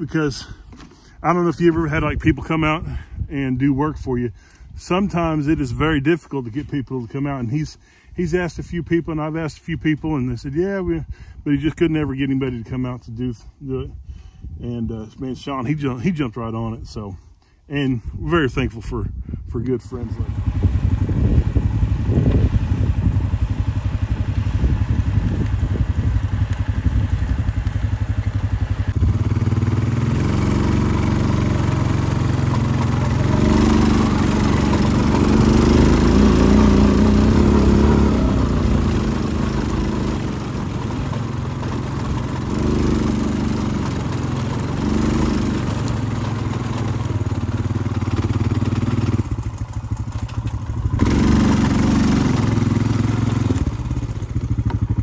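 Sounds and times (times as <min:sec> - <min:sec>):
vehicle engine running: 0:19.9 - 0:55.0.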